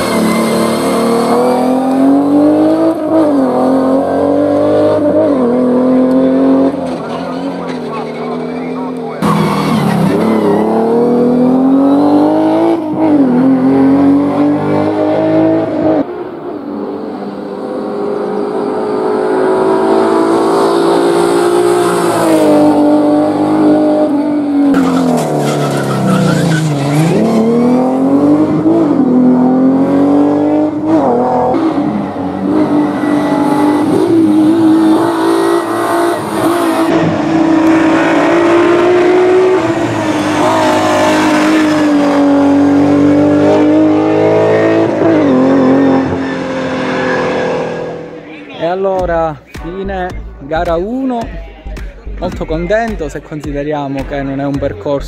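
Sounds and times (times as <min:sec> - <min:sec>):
racing car engine revving: 0:00.0 - 0:48.4.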